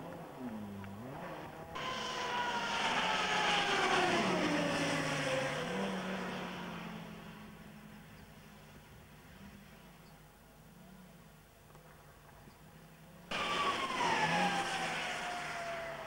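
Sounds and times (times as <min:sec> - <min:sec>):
rally car engine passing: 0:00.0 - 0:07.9, 0:13.3 - 0:16.0.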